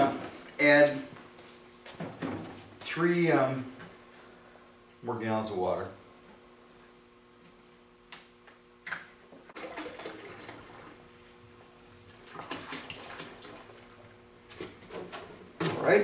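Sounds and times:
water pouring into a bucket: 9.6s - 11.0s.

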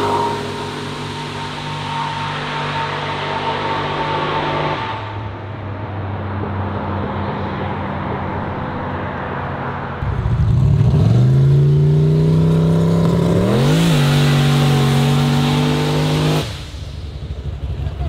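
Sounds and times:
drag car engine revving hard: 0.0s - 5.4s, 10.1s - 16.8s.

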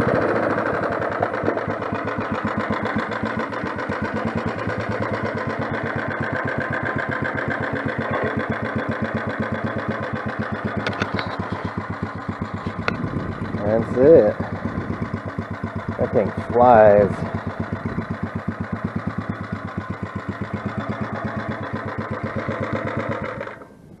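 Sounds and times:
small engine idling: 0.0s - 24.0s.

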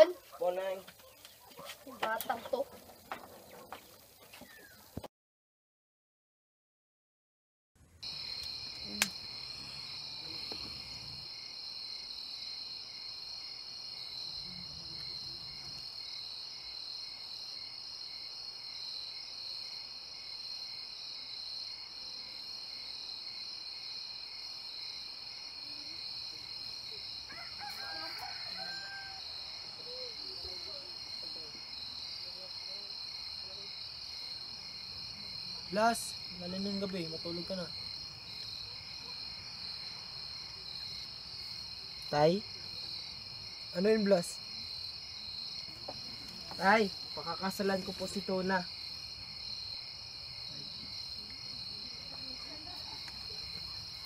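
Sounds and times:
crickets and insects trilling: 0.0s - 5.1s, 8.0s - 54.0s
slow regular insect pulse: 8.0s - 54.0s.

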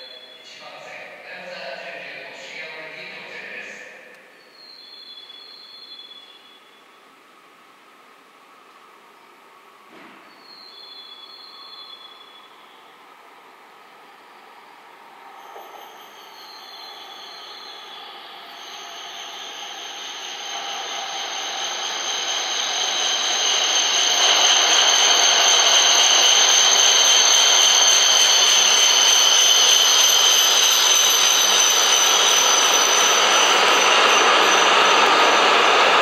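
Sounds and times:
train rushing noise: 13.2s - 36.0s
high steady whine: 15.2s - 36.0s.

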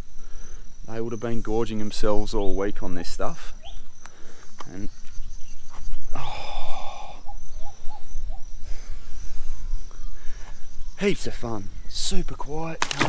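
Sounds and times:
faint high insect drone: 0.0s - 13.0s
person breathing close to microphone: 6.1s - 7.4s, 8.5s - 10.7s.

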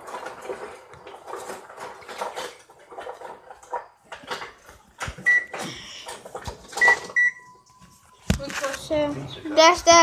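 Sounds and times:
microwave keypad beep: 5.2s - 5.6s, 6.7s - 7.9s.

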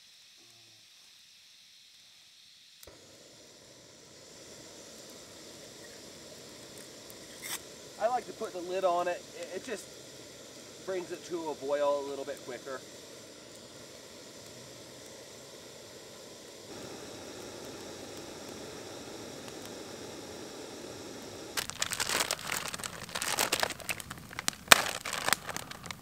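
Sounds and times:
gas stove hissing: 0.0s - 26.0s
plastic bag crinkling: 21.6s - 26.0s.

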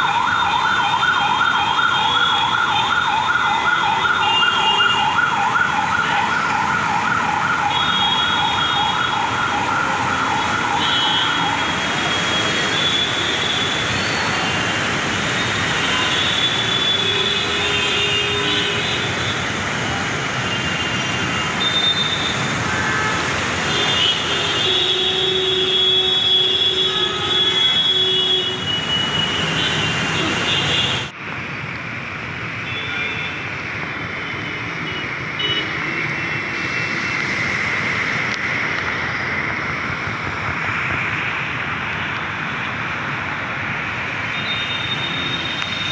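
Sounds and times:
traffic splashing through water: 0.0s - 45.9s
heavy rain: 1.3s - 44.4s
vehicle horns: 20.5s - 31.1s, 34.8s - 36.5s.

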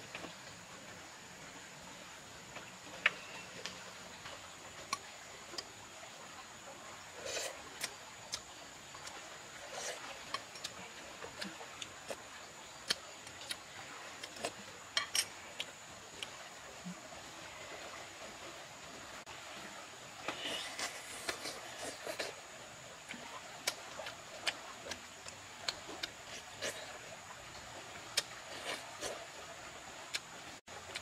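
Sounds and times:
faint high-pitched whine: 0.0s - 31.0s
spoon scraping a plate: 15.0s - 15.4s.

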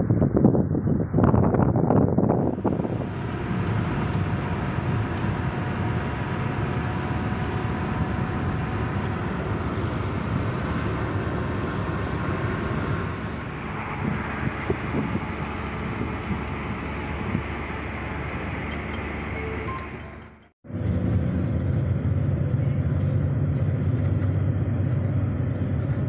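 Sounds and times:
vehicle road rumble: 0.0s - 26.0s.

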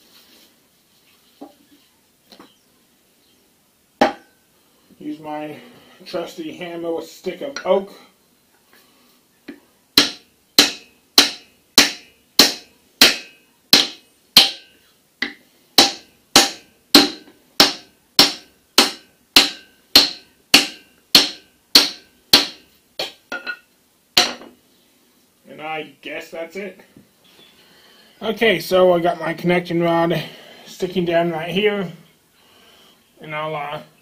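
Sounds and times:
hammer striking wood: 4.0s - 4.3s, 10.0s - 23.6s, 24.2s - 24.5s.

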